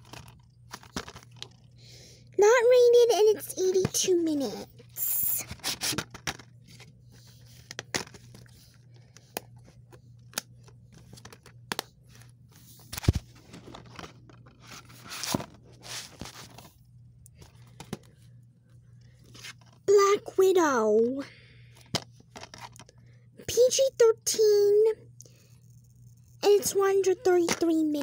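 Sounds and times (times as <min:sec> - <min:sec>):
plastic cases clicking and rustling: 0:00.0 - 0:01.6.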